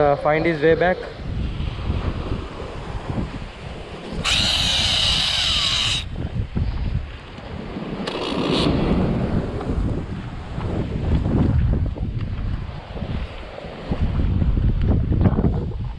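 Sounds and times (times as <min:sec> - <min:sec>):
wind buffeting microphone: 0:00.8 - 0:15.9
fishing reel whirring: 0:04.1 - 0:06.1.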